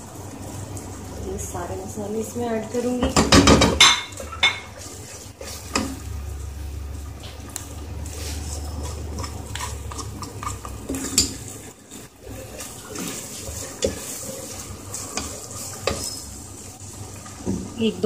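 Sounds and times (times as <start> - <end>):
frying sizzle: 0.0 - 18.0
spatula scraping in pot: 8.0 - 16.4.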